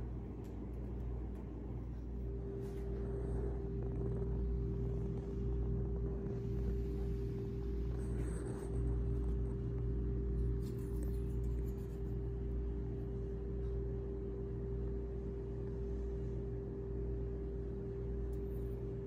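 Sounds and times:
mechanical hum with low rumble: 0.0 - 19.0.

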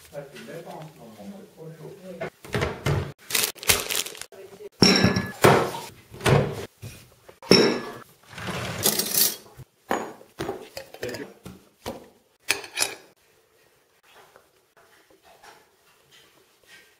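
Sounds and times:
glass jars and spoon clinking: 4.8 - 5.4, 7.4 - 8.0, 12.5 - 13.1.

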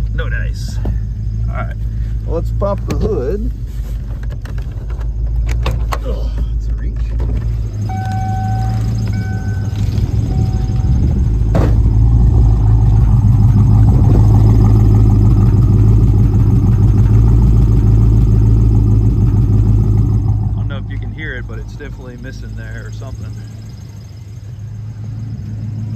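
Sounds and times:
car engine idling rough: 0.0 - 25.9
car door shutting: 2.7 - 12.0
short beeps: 7.8 - 11.4.

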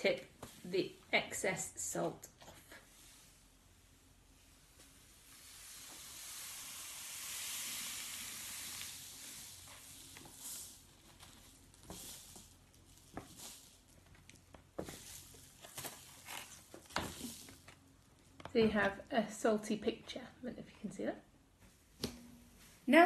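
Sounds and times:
salt hissing off paper: 4.3 - 18.0.

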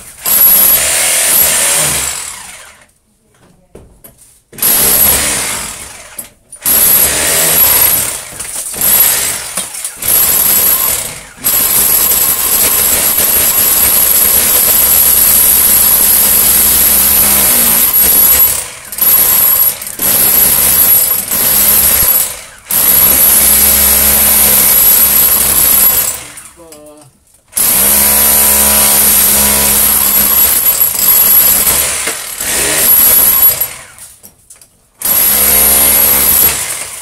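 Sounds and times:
electric drill whining: 0.2 - 2.9, 4.6 - 26.6, 35.0 - 37.0.

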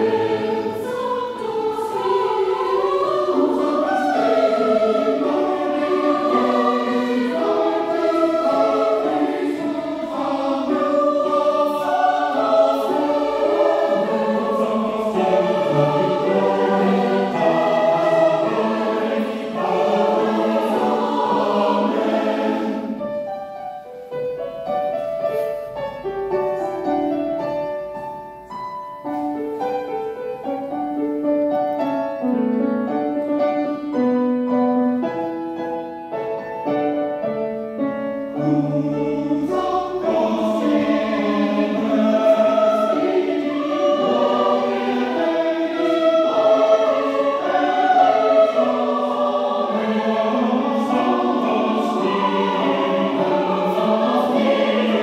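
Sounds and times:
mixed choir singing: 0.0 - 23.3, 36.8 - 55.0
grand piano accompaniment: 0.0 - 55.0.

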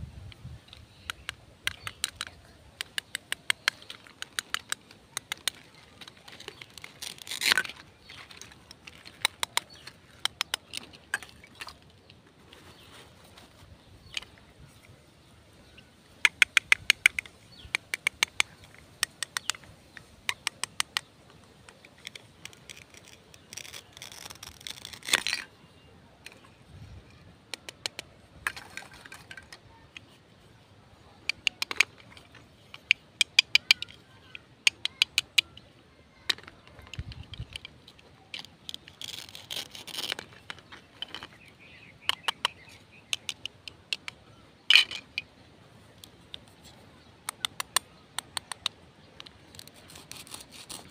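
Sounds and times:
velcro tearing apart: 22.5 - 25.2, 49.5 - 50.9.

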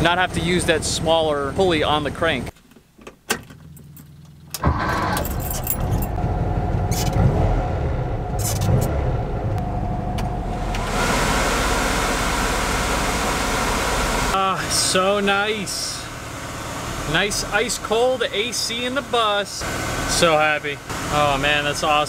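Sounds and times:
keys clicking in ignition: 3.0 - 6.2, 6.9 - 7.2, 8.4 - 8.9
engine cranking and running: 3.6 - 22.0
air-conditioning blower rushing: 9.4 - 22.0.

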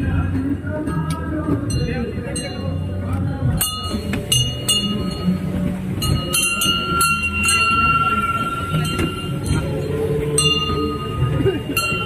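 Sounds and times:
crowd din: 0.0 - 12.0
bells ringing: 0.7 - 12.0.

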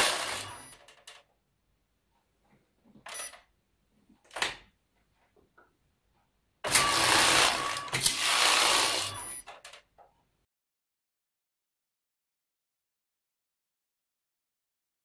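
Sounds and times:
knitting machine carriage sliding: 0.0 - 1.2, 6.7 - 9.8.

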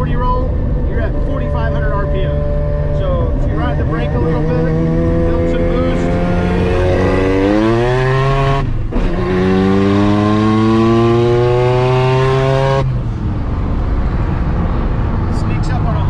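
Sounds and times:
rotary engine revving: 0.6 - 13.0.

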